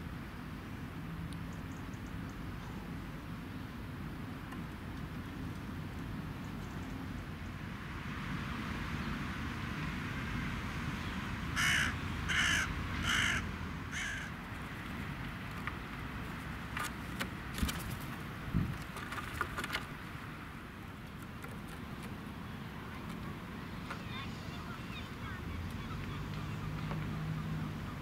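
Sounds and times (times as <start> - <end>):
magpie chattering calls: 11.6 - 14.3.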